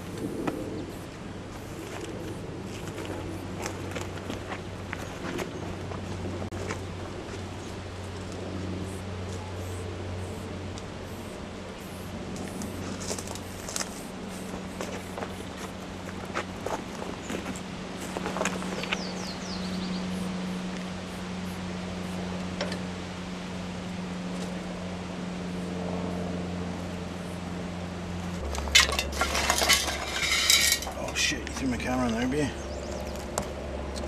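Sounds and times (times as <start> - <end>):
steady low hum: 0.0 - 34.0
spray cans clinking and rattling: 28.5 - 31.3.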